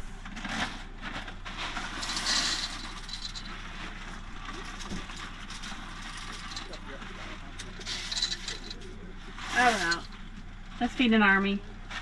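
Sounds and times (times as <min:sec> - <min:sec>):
steady low hum: 0:00.0 - 0:12.0
dry pasta pouring into a pot: 0:01.7 - 0:06.8.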